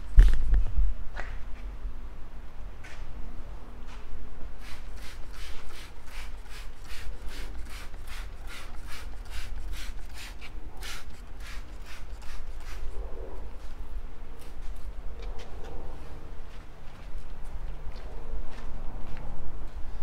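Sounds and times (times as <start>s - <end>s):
spray bottle spritzing: 4.6s - 12.9s.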